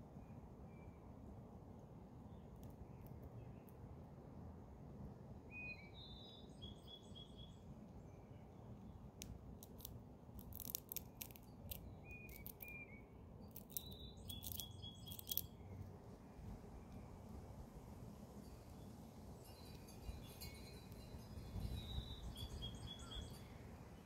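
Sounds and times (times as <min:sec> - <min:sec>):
small birds chirping: 0:05.6 - 0:17.1, 0:19.4 - 0:23.6
squirrel chewing a peanut: 0:09.2 - 0:12.8, 0:13.5 - 0:15.5.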